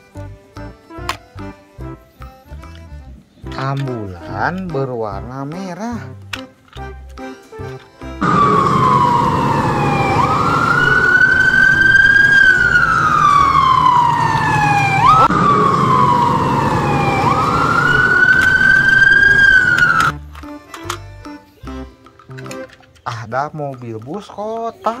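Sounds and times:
ambulance siren wailing: 8.2s - 20.1s.

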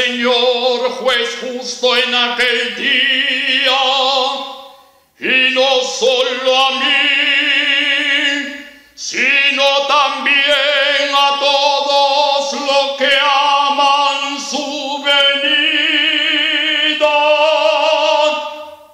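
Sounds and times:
man chanting: 0.0s - 18.9s
breath: 4.7s - 5.2s, 8.6s - 9.0s.

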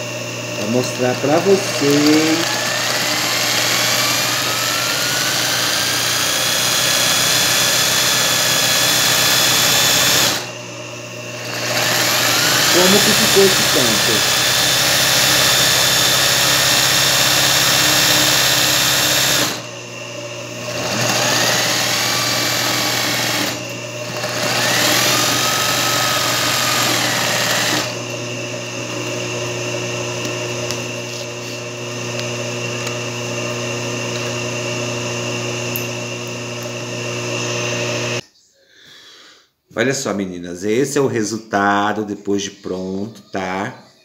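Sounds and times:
sewing machine running: 0.5s - 10.6s, 11.3s - 19.7s, 20.6s - 30.2s.

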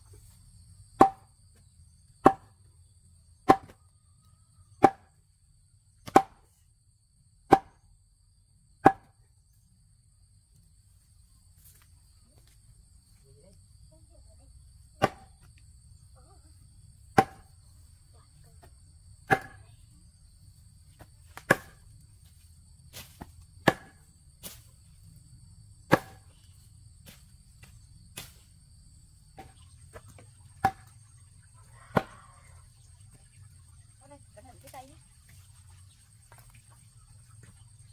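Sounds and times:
high insect drone: 0.0s - 37.9s.

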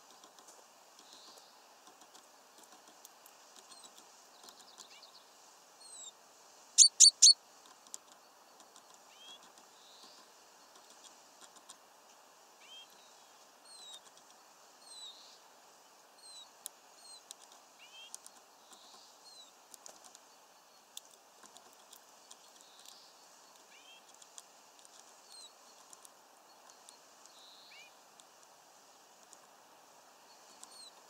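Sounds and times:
songbird chirps: 0.0s - 31.0s
light clicks and taps: 7.6s - 11.8s, 16.6s - 19.1s, 29.2s - 29.6s.

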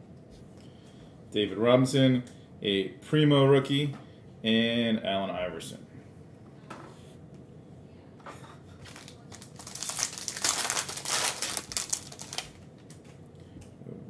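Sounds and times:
foil wrapper crinkling: 8.8s - 13.0s.

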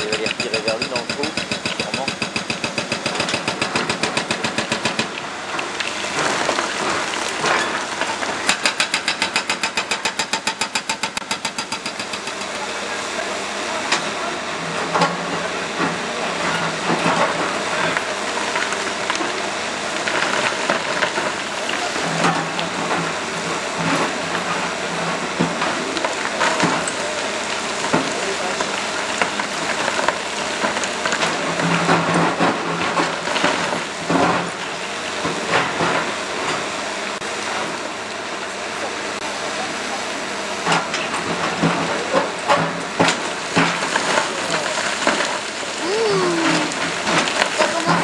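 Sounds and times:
hydraulic breaker hammering stone: 0.0s - 13.0s.

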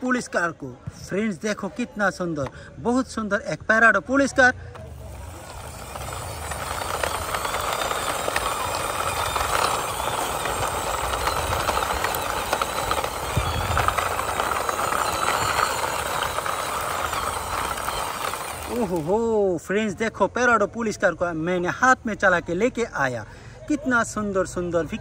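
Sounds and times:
toy car wheels rolling on concrete: 4.7s - 19.5s.

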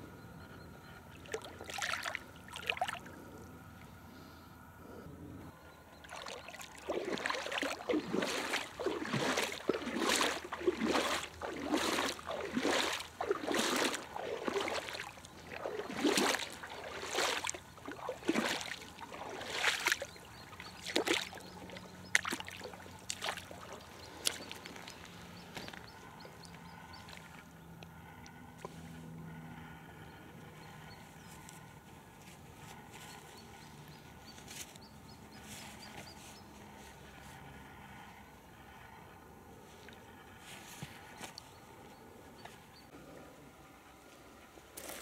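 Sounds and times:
water splashing: 1.2s - 3.1s, 6.0s - 26.2s
water dripping: 6.1s - 25.8s.

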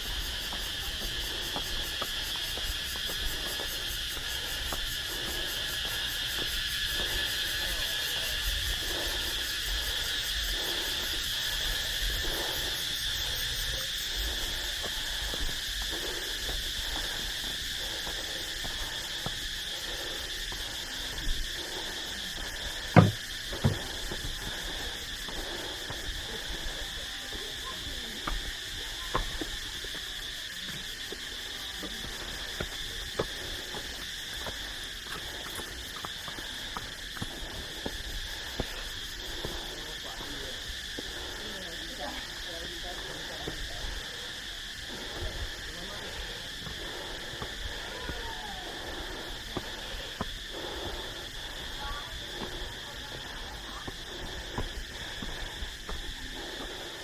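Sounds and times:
footsteps on stone steps: 0.0s - 57.0s
insects chirping: 0.0s - 57.0s
sharp knocks: 23.0s - 23.8s.

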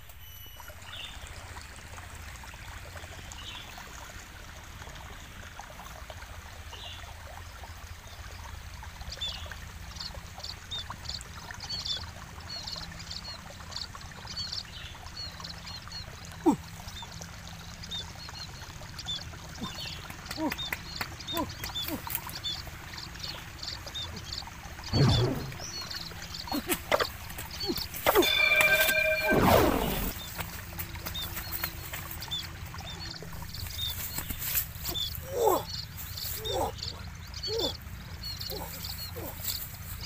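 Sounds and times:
river water flowing: 0.2s - 40.0s
small birds chirping: 6.8s - 40.0s.

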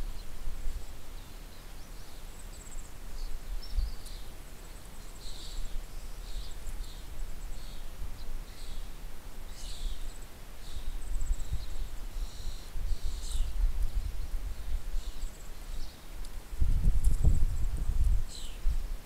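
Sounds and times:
bird chirps and calls: 0.1s - 16.2s, 17.1s - 18.7s
wind rumble on microphone: 3.2s - 4.2s, 10.8s - 19.0s.

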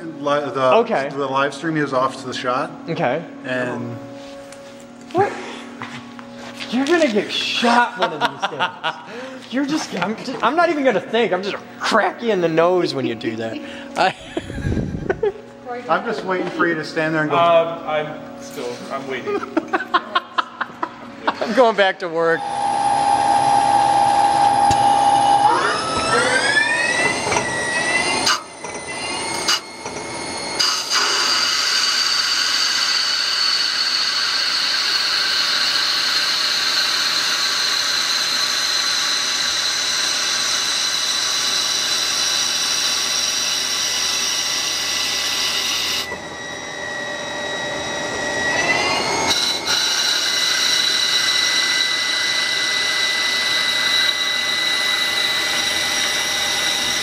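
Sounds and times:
lathe spindle whining: 0.0s - 57.0s.

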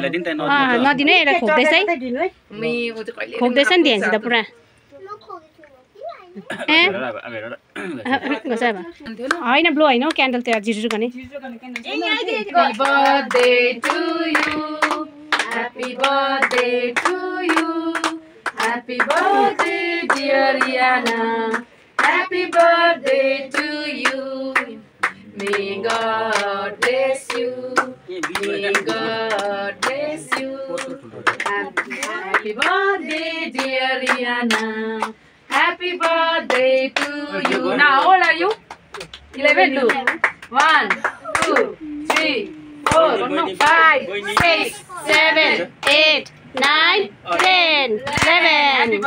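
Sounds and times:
people clapping along: 9.2s - 11.1s, 12.6s - 49.0s
women and children singing: 11.9s - 38.6s, 39.3s - 49.0s.

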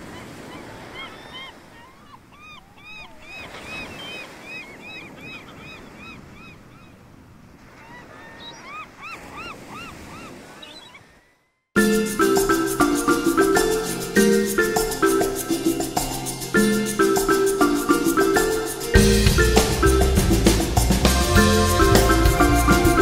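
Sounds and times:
birds honking: 11.8s - 23.0s.

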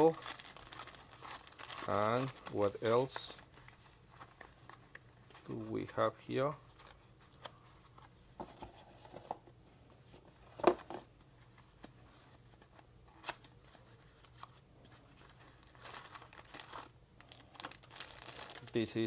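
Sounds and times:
plastic bags crinkling: 0.0s - 5.6s, 15.2s - 19.0s.

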